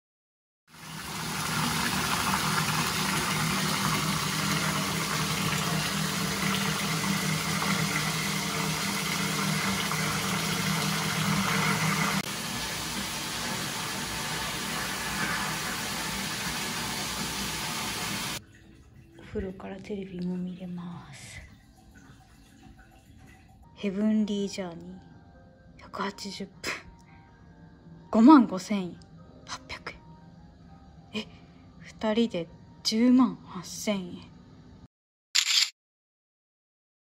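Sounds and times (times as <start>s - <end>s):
tap water running into bathtub: 0.7s - 20.6s, 21.2s - 23.7s.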